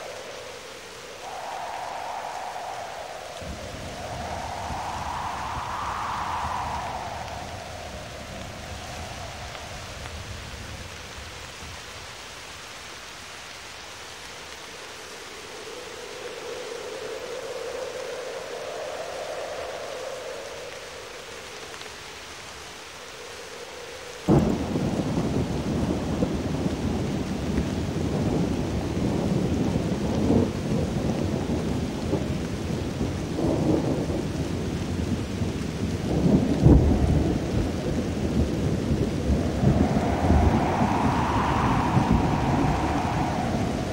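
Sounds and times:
rain: 0.0s - 43.9s
thunderclaps: 1.1s - 10.9s, 24.2s - 32.2s, 32.8s - 43.9s.

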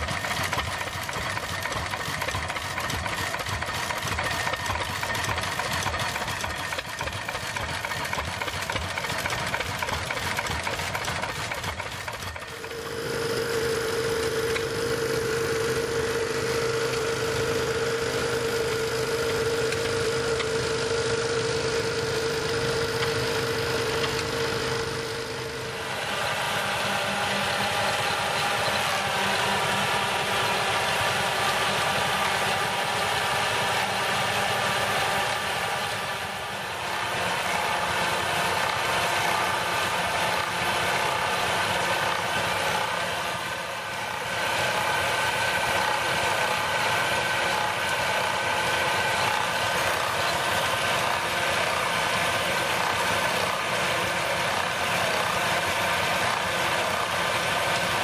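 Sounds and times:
woodworking machine drone and rattle: 0.0s - 58.0s.

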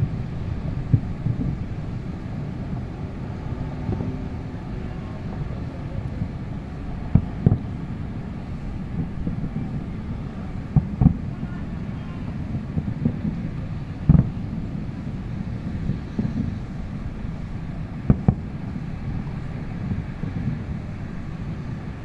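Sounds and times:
low city rumble: 0.0s - 22.0s
wind on microphone: 0.0s - 22.0s
distant fireworks thumps: 0.6s - 1.8s, 7.0s - 22.0s.

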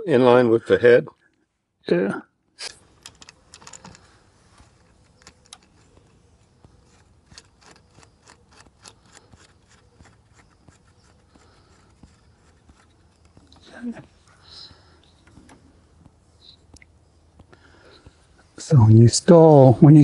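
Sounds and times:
plastic clicks and rubbing: 2.6s - 13.7s.

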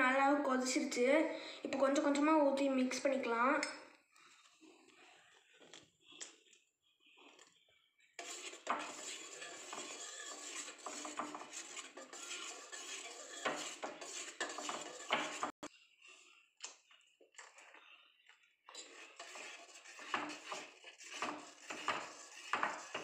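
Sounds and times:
whisk scraping a metal pan: 8.2s - 15.7s, 18.8s - 23.0s.

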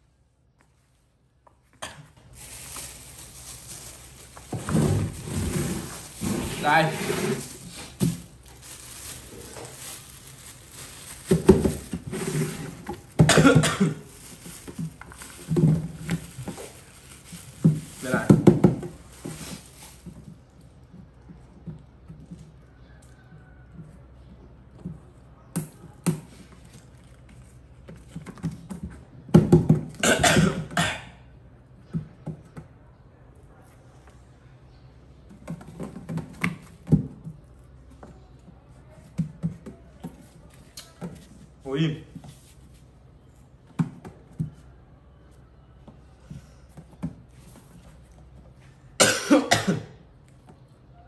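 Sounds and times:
rustling: 1.6s - 20.9s
person coughing: 13.2s - 14.1s, 30.0s - 31.2s, 49.0s - 50.0s.

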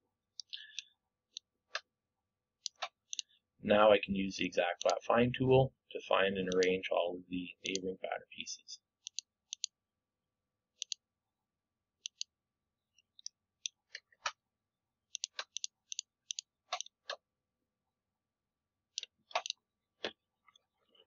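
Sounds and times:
computer mouse clicking: 2.6s - 3.3s, 6.5s - 6.7s, 9.0s - 9.7s, 10.8s - 11.0s, 12.0s - 12.3s, 15.1s - 17.2s, 19.0s - 20.6s.

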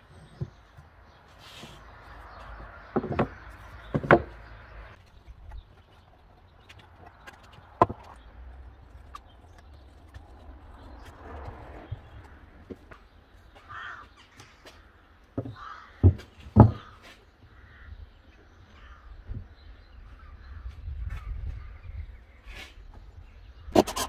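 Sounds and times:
wooden knocks: 2.8s - 4.5s, 15.4s - 17.1s
harsh cawing bird calls: 11.9s - 22.6s.

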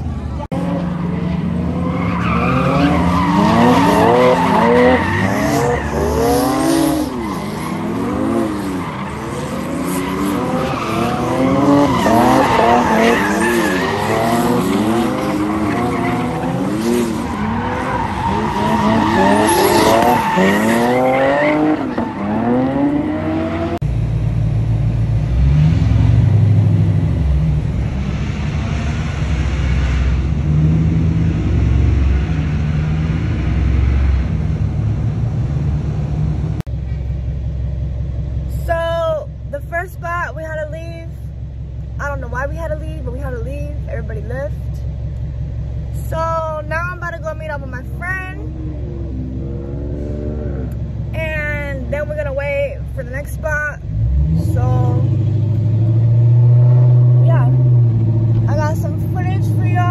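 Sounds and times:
tires squealing: 0.0s - 23.8s
car driving rumble from inside: 0.0s - 59.9s
car engine revving: 0.0s - 59.9s.

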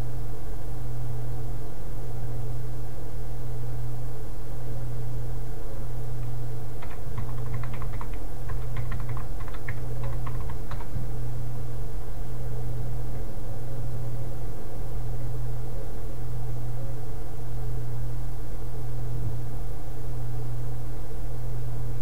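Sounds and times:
low steady hum: 0.0s - 22.0s
keyboard typing: 6.8s - 11.0s.

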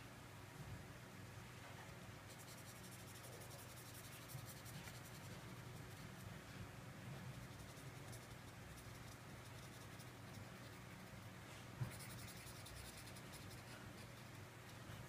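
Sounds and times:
colored pencil scratching on paper: 2.3s - 6.3s, 7.3s - 11.2s, 11.8s - 15.0s.

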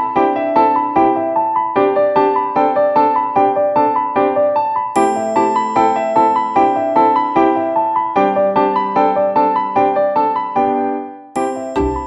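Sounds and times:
keyboard music: 5.0s - 8.2s, 11.4s - 12.0s
bass notes: 11.8s - 12.0s.

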